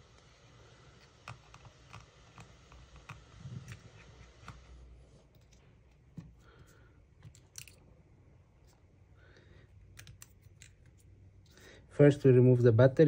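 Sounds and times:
small screwdriver clicks and taps: 9.9s - 11.0s.

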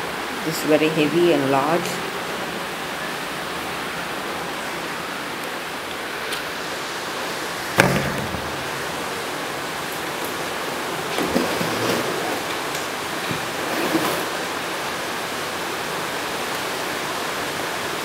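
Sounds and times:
steady hiss: 0.0s - 18.0s
sharp knock: 7.8s - 8.7s.

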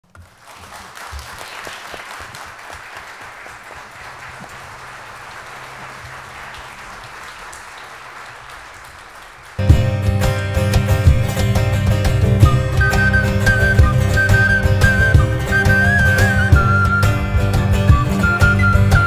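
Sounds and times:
audience applauding: 0.0s - 19.0s
plucked lute: 9.6s - 19.0s.

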